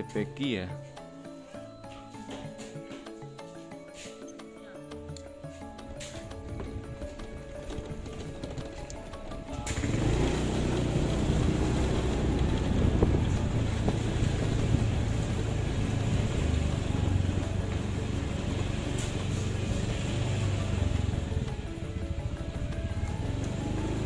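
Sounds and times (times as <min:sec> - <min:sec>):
motorcycle engine running: 0:06.3 - 0:24.0
wind buffeting microphone: 0:11.3 - 0:17.6.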